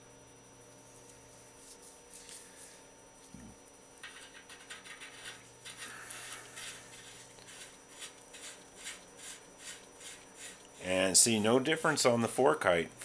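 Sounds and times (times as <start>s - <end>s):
metal nut scraping on threads: 4.0s - 10.8s.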